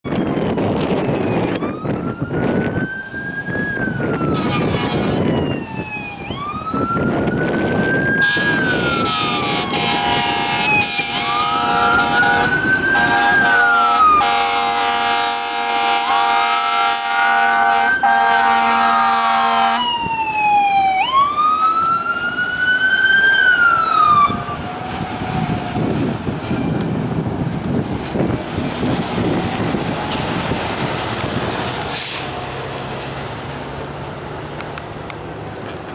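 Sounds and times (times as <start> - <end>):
engine and road noise: 0.0 - 35.9
fire engine siren wailing: 0.0 - 35.9
long horn blast: 4.2 - 5.3, 8.2 - 19.9.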